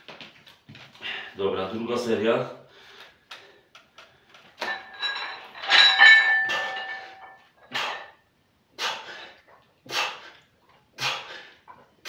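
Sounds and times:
iron weight plates clanking: 4.6 - 8.1.

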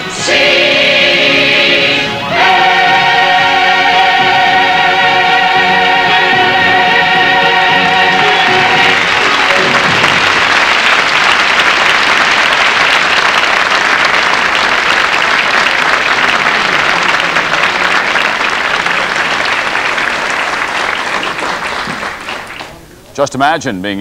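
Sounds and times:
audience applauding: 7.4 - 22.8.

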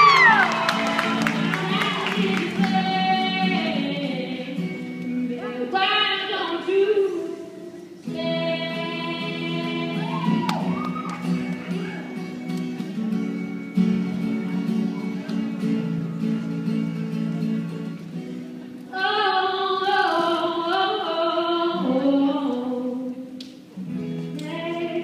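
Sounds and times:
woman singing: 0.0 - 10.7, 18.9 - 23.4, 24.3 - 25.0
acoustic guitar chords: 0.0 - 23.0.

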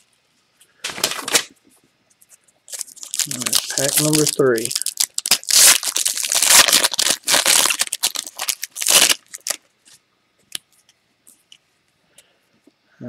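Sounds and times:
wrapper tearing and crinkling: 0.9 - 1.5, 2.7 - 9.6.

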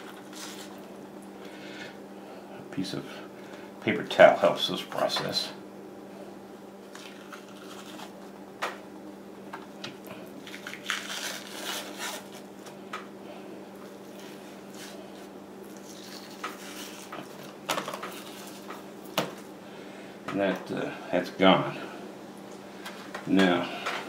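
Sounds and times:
paper towel rustling: 0.0 - 0.9, 10.4 - 12.8, 13.9 - 18.8
steady low hum: 0.0 - 24.0
membrane squishing and tearing: 6.9 - 8.2, 10.4 - 12.7.

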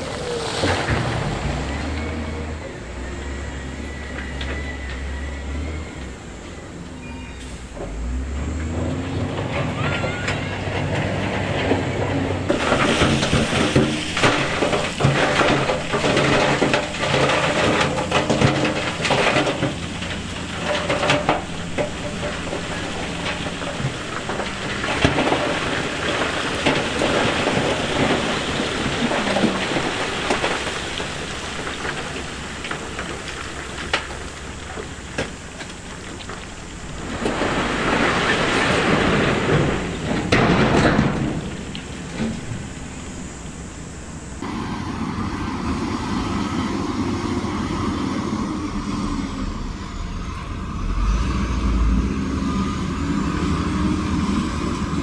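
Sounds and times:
rock tumbling and clattering: 0.0 - 2.4, 9.2 - 44.8, 52.8 - 55.0
diesel engine running: 0.0 - 55.0.

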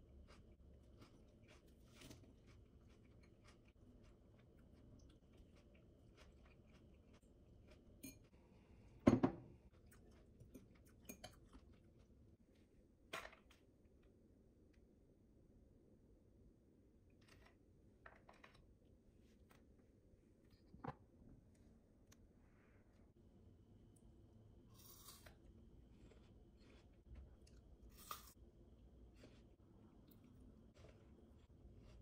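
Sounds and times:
chewing and crunching: 0.0 - 8.4, 9.7 - 12.4, 24.7 - 28.4.

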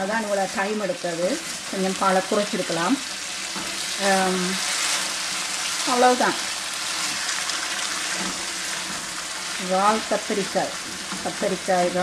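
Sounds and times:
curry sizzling in a wok: 0.0 - 12.0
spatula stirring: 3.2 - 9.6.

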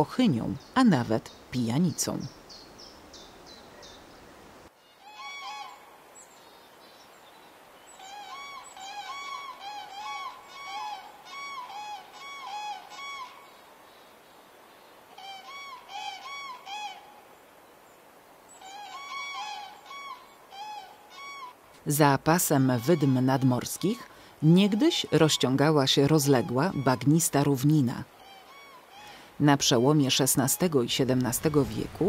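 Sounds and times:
cranes trumpeting calls: 4.9 - 5.9, 8.0 - 13.6, 15.1 - 17.2, 18.6 - 21.6, 22.4 - 32.0.

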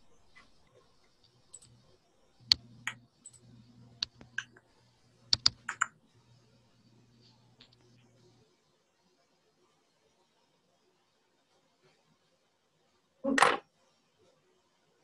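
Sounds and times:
faint low hum: 0.0 - 14.9
sharp clicks: 5.4 - 5.9.

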